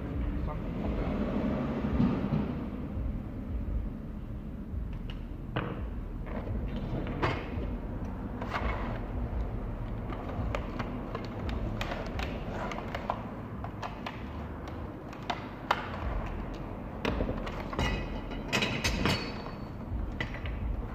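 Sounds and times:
low background rumble: 0.0 - 15.2, 16.0 - 20.9.

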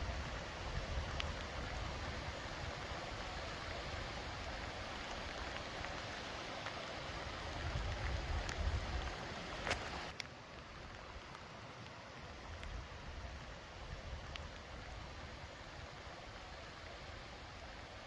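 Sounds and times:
wind rumbling on microphone: 0.0 - 6.2, 7.0 - 10.1
rain hissing: 0.0 - 18.0.

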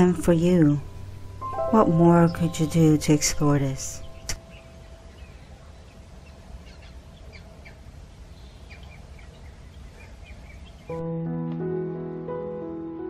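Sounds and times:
piano music: 0.0 - 5.8, 10.9 - 13.0
low background rumble: 0.0 - 8.4
small birds chirping: 0.0 - 11.0.

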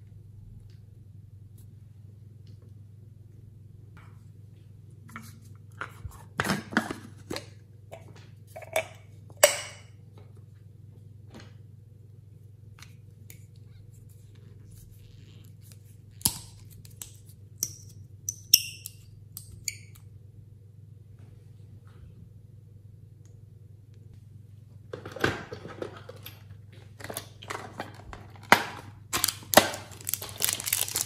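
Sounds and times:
low steady hum: 0.0 - 31.0
bottle cap clicks and clinks: 17.6 - 20.0.

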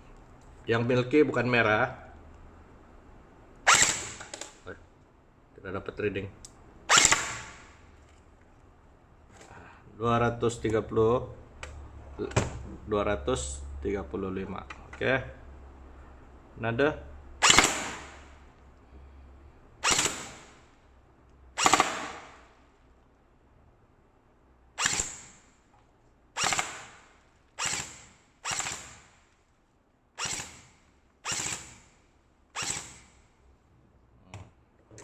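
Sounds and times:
gel blaster shots popping: 17.4 - 18.2.

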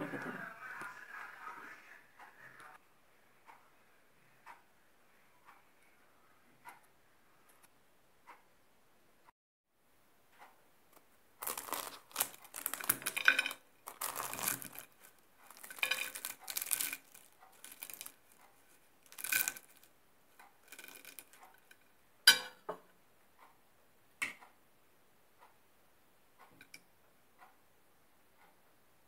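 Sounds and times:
knife cutting pastry: 11.4 - 18.5
filo pastry crackling and crunching: 11.4 - 21.8.

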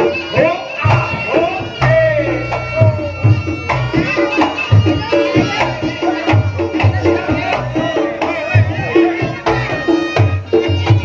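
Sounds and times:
drum strokes: 0.0 - 11.0
pitch-bending melody: 0.0 - 11.0
low booming beats: 0.8 - 7.8.

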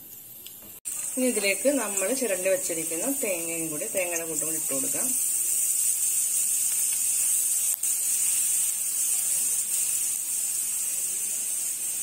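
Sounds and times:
ghee sizzling in frying pan: 0.0 - 12.0.

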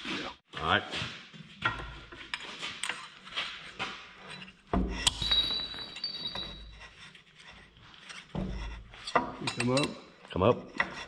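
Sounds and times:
steel parts clinking and tapping: 1.6 - 3.3, 4.2 - 6.9, 8.0 - 11.0.

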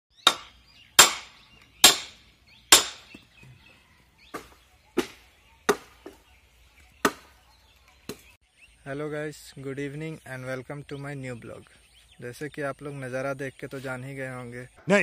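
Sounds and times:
iron tools chopping bamboo: 0.2 - 3.5, 4.2 - 6.2, 7.0 - 7.4.

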